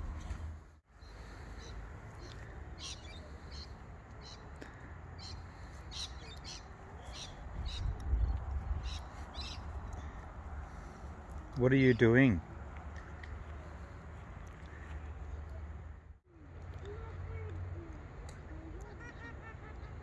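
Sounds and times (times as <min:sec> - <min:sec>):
birds chirping: 0:00.9 - 0:15.6
wind rumble on microphone: 0:07.3 - 0:10.6.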